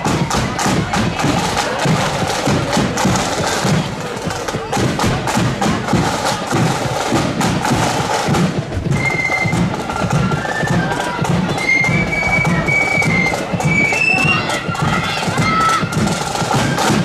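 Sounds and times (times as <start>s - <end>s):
marching drums: 0.0s - 17.0s
flutes playing a tune: 8.8s - 17.0s.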